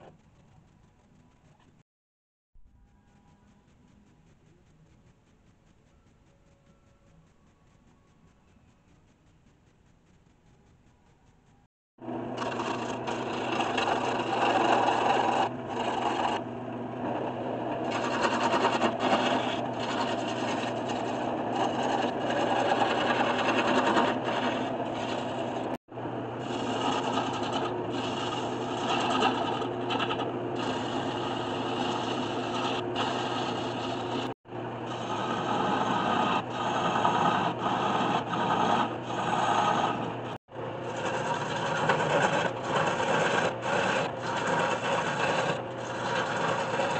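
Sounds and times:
wood lathe humming: 12.0 - 46.9
gouge shaving wood chips: 12.3 - 25.8, 26.4 - 46.9.

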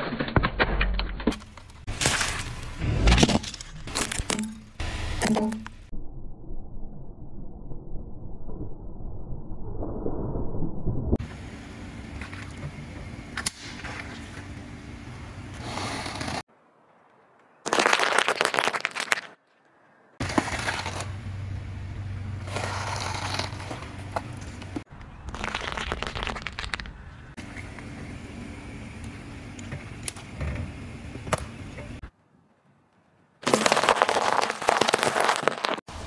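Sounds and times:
engine and tyre rumble: 11.2 - 16.8, 19.7 - 32.2
tyre crushing with crackling: 17.6 - 19.4, 33.4 - 35.9.

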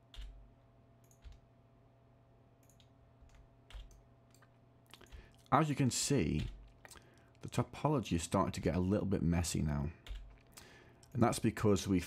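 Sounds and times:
faint steady hum: 0.0 - 12.0
keyboard and mouse clicks: 1.0 - 1.4, 2.6 - 5.6, 6.3 - 7.4, 10.1 - 11.2.

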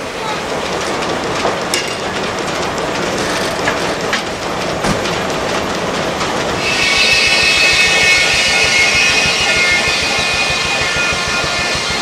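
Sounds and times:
log carriage clattering on track: 0.0 - 12.0
sawmill machinery running: 0.0 - 12.0
scattered knocks: 0.5 - 12.0
circular saw whine: 6.6 - 12.0.

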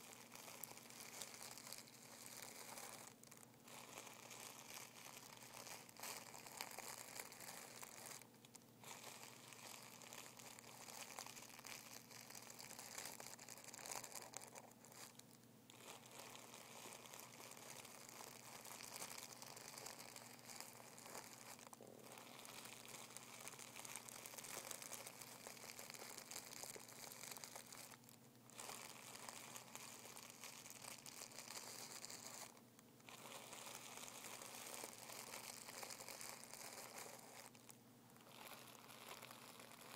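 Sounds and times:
tissue paper rustling: 28.6 - 37.7.

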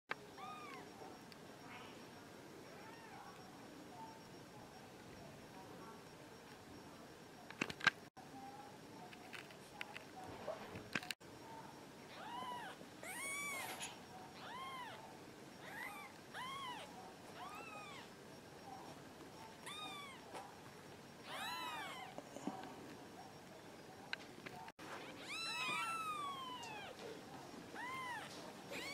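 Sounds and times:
kittens mewing: 21.3 - 22.2, 25.1 - 27.0.

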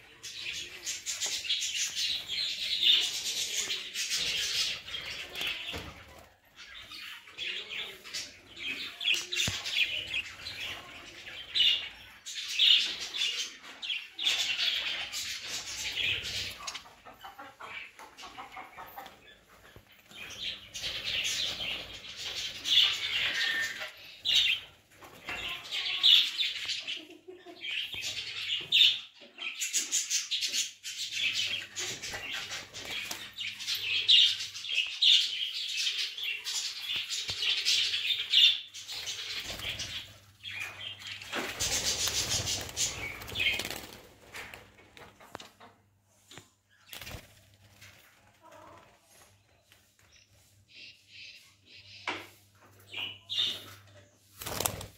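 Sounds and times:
wings flapping: 41.3 - 45.0, 46.9 - 48.1, 54.4 - 54.9.

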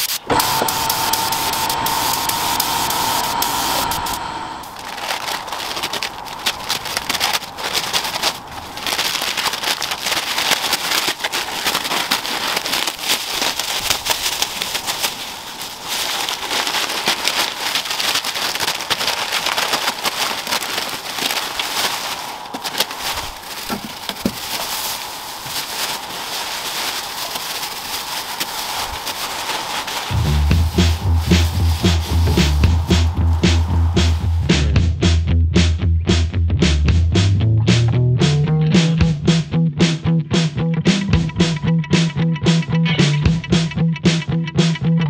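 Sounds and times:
plastic sheet crinkling: 0.0 - 34.5.

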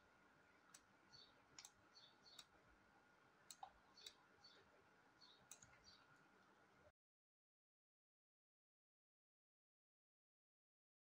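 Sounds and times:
computer mouse clicks: 1.6 - 2.5, 3.5 - 4.2, 5.5 - 6.0.

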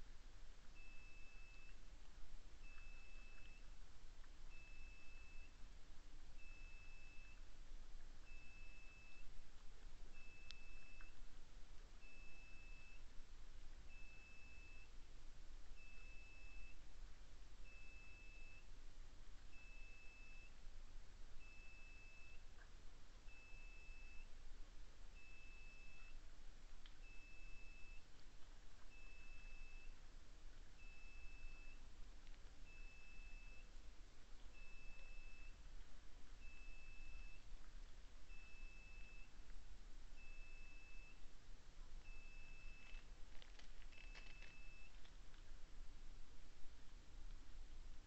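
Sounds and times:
electronic beeping: 42.1 - 45.0.

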